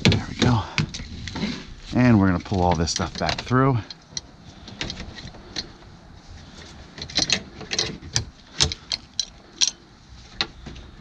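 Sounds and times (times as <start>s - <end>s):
seat belt hardware clicking: 2.8s - 5.8s, 7.0s - 9.8s.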